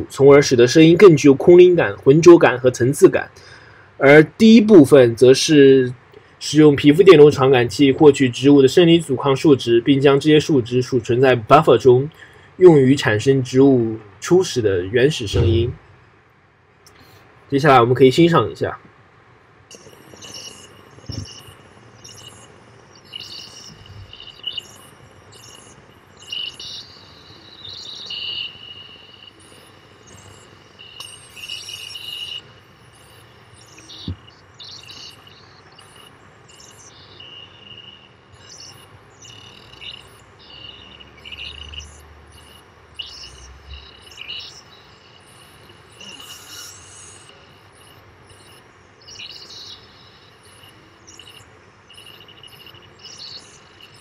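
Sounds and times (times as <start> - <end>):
steady high synth tone: 15.2 - 15.8, 19.7 - 54.0
short high chirps: 15.3 - 15.8.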